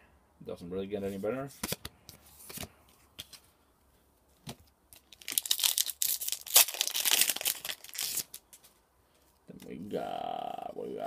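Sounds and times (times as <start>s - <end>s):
foil wrapper crinkling and tearing: 5.0s - 8.6s.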